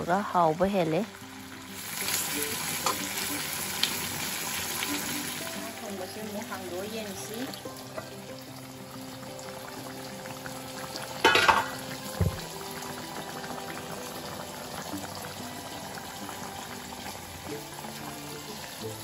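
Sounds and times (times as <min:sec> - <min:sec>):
fish curry bubbling: 0:01.1 - 0:19.0
short thump: 0:12.2 - 0:12.5.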